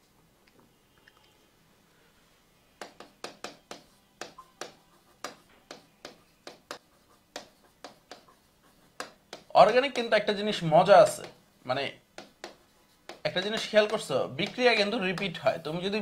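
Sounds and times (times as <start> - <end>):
pen tapping on a board: 2.8 - 8.4, 9.0 - 10.1, 11.2 - 11.4, 12.2 - 15.4.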